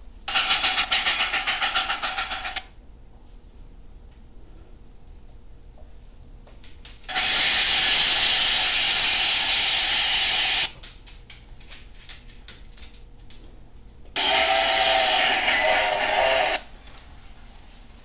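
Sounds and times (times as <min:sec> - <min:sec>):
loud hissing: 0:07.1 - 0:10.7, 0:14.2 - 0:16.6.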